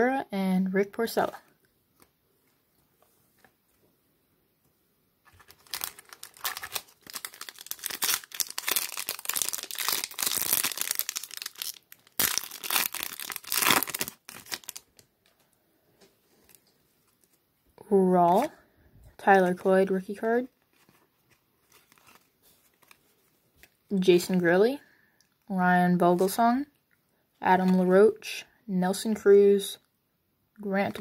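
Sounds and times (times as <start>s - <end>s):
wrapper tearing and crinkling: 5.3s - 15.1s, 20.7s - 23.0s.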